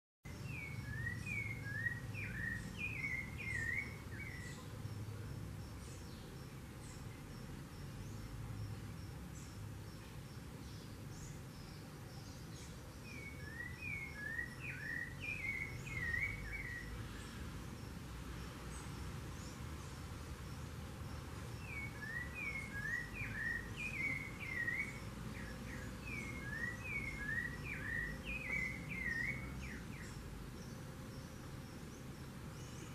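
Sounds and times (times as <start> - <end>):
thrush singing whistled phrases: 0.6 - 4.4, 13.2 - 17.0, 21.6 - 25.1, 26.0 - 29.8.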